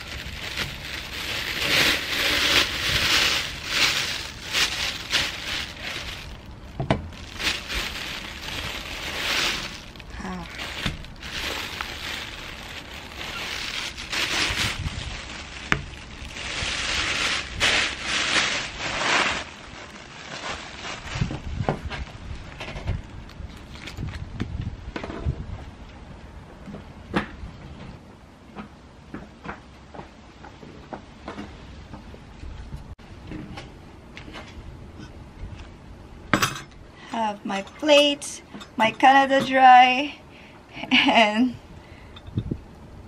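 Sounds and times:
plastic bag rustling: 0.0s - 24.2s.

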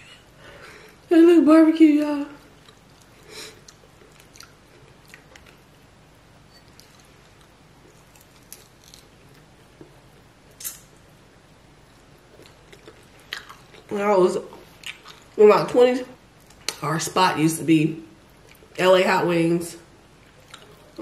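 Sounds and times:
chewing mouth clicks and smacks: 2.6s - 5.6s, 20.3s - 21.0s.

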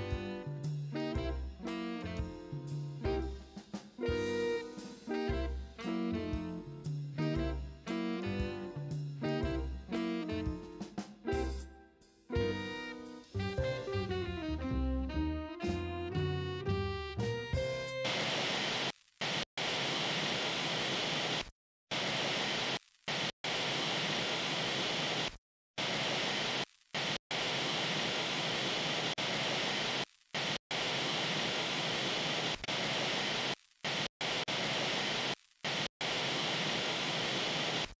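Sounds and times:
music track: 0.0s - 18.1s
television static hiss: 18.0s - 38.0s.

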